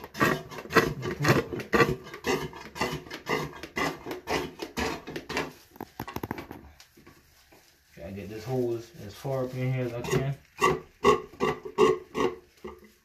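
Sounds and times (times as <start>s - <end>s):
hand pump strokes: 0.0s - 5.5s.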